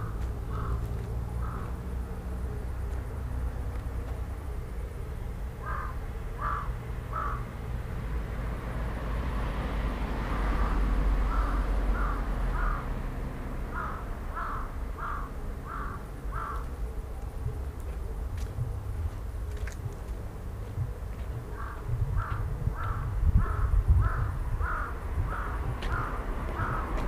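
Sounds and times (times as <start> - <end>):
crow cawing: 0.0 - 1.8, 5.6 - 7.5, 10.6 - 12.9, 13.7 - 16.7, 21.6 - 27.0.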